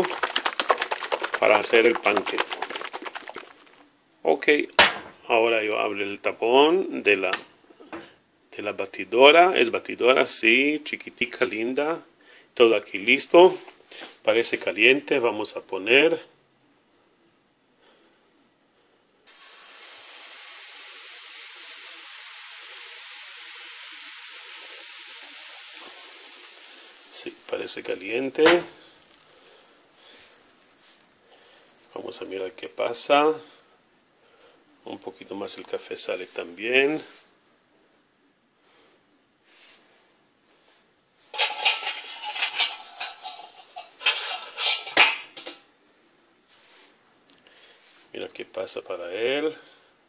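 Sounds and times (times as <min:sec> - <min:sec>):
batter sizzling in frying pan: 0:00.0 - 0:03.8, 0:19.3 - 0:32.3, 0:41.4 - 0:45.5.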